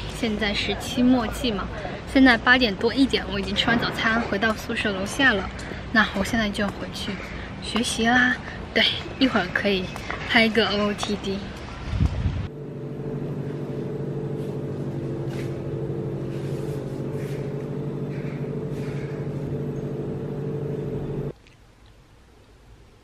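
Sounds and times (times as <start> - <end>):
machine humming: 12.5 - 21.3.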